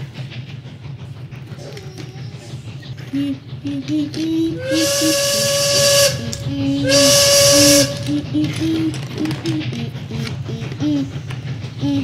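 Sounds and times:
steam train whistle: 4.5 - 8.6.

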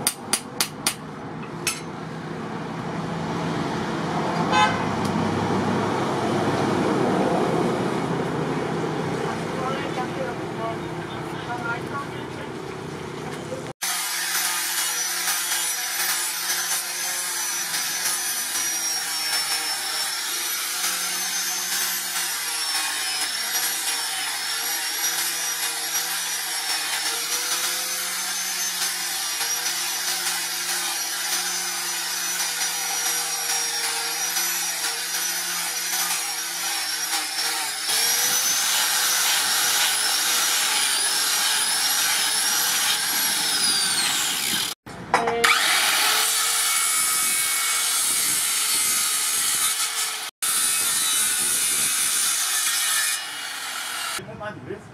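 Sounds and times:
angle grinder sanding metal: 13.8 - 44.8, 45.4 - 54.2
grinder sanding wood: 13.8 - 44.8.

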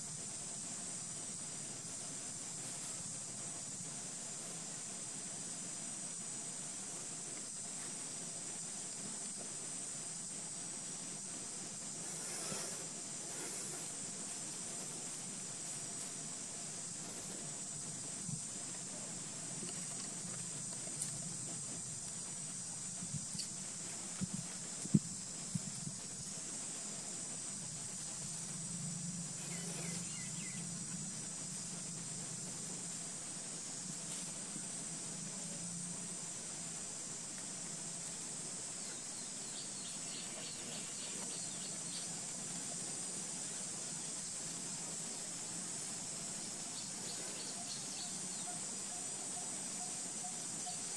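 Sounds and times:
faint low hum: 0.0 - 50.9
high-pitched hiss: 0.0 - 50.9
faint ticks: 17.0 - 27.0
high-pitched insect drone: 22.5 - 34.2, 45.2 - 50.9
faint bird chirps: 29.4 - 30.8, 46.7 - 50.9.

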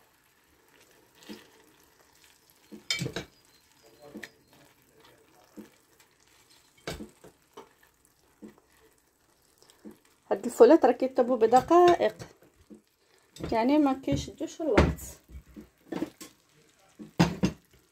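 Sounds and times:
sauce sizzling: 0.0 - 17.9
soft wet squelches: 0.1 - 11.5, 12.1 - 14.4.

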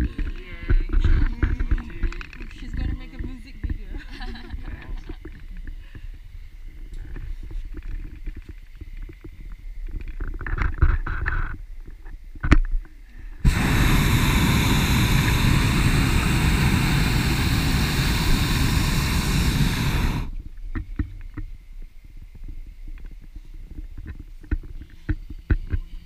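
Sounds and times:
propane burner blast: 13.4 - 20.4
low gusty rumbling: 13.4 - 20.6.

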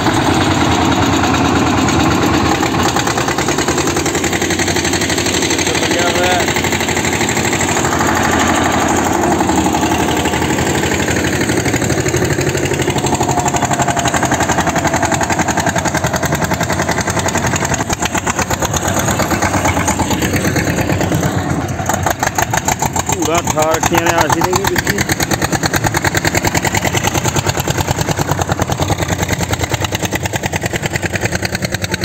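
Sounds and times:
tractor diesel engines under load: 0.0 - 32.0.

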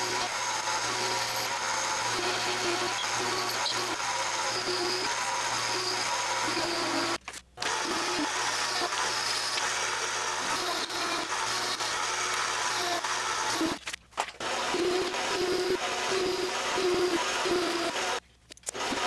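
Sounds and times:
metal lathe cutting steel: 0.0 - 13.8.

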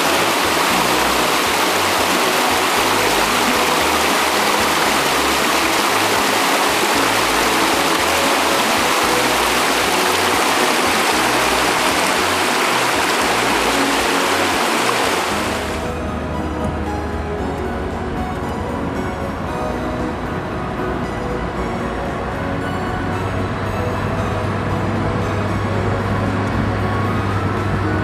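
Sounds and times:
river rushing over rapids: 0.0 - 16.0.

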